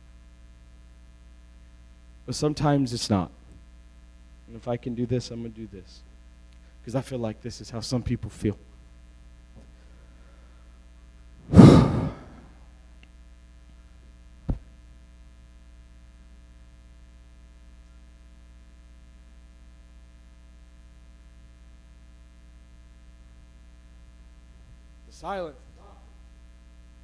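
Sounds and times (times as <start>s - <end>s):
mains hum: 0.0s - 27.0s
sigh into microphone: 11.5s - 12.5s.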